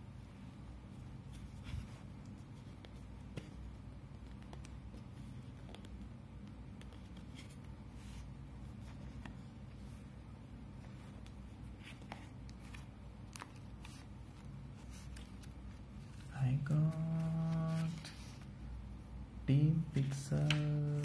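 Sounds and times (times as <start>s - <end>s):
steady low hum: 0.0s - 21.0s
cardboard and paper rustling: 10.8s - 18.5s.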